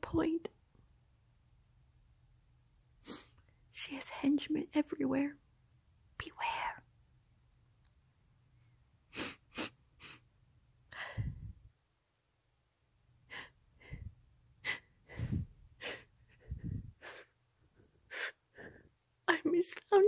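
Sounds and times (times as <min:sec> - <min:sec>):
woman sniffling: 0:09.1 - 0:10.2.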